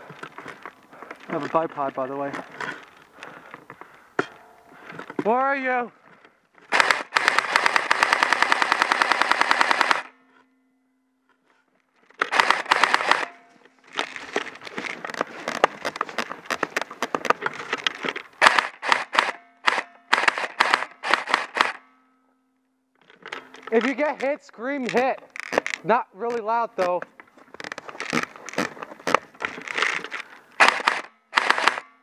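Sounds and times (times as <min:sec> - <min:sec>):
airsoft rifle firing bursts: 0:06.7 - 0:10.1, 0:12.2 - 0:13.4, 0:18.4 - 0:21.8, 0:30.6 - 0:32.0.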